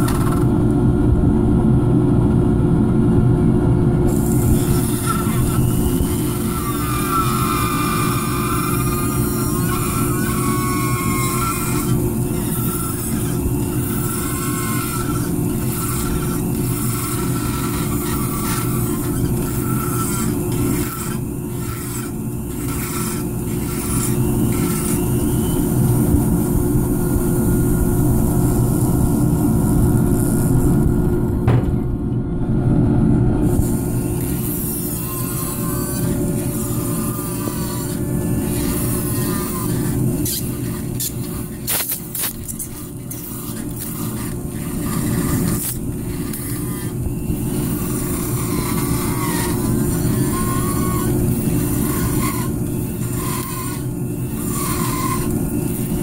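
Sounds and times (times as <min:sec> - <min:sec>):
rotary power carver running: 0:00.0 - 0:00.7, 0:04.1 - 0:31.3, 0:33.4 - 0:56.0
bur cutting into wood: 0:04.1 - 0:25.6, 0:33.5 - 0:56.0
high wavering tone: 0:33.4 - 0:56.0.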